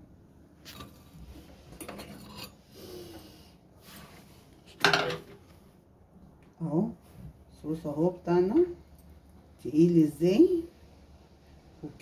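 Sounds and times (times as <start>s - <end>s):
metal spoon scraping a plate: 1.8s - 3.0s.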